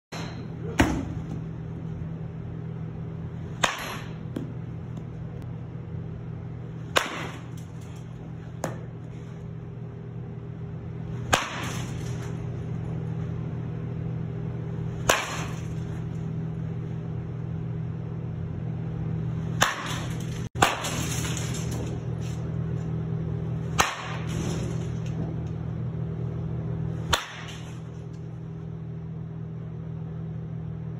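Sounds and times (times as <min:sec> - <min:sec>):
steady low hum: 0:00.1 - 0:30.9
baseball bat cracking ball: 0:03.4 - 0:05.2, 0:06.8 - 0:07.8, 0:08.5 - 0:09.0, 0:11.1 - 0:12.2, 0:14.9 - 0:16.0, 0:19.5 - 0:21.1, 0:23.7 - 0:24.5, 0:27.0 - 0:28.1.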